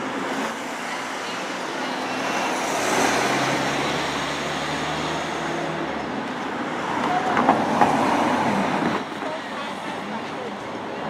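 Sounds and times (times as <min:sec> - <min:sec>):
vehicle passing with rushing hiss: 0:00.2 - 0:07.0.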